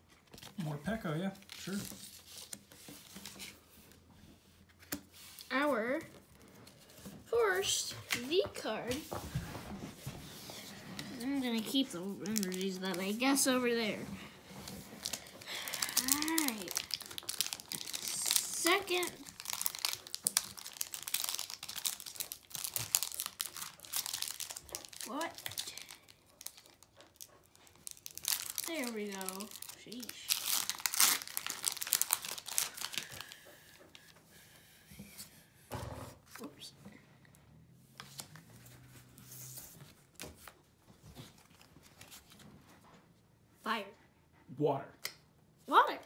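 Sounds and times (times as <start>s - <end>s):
foil wrapper crinkling and tearing: 1.4s - 3.4s, 11.1s - 13.6s, 14.7s - 34.0s
trading cards rustling and clicking: 4.7s - 9.2s, 10.4s - 34.1s.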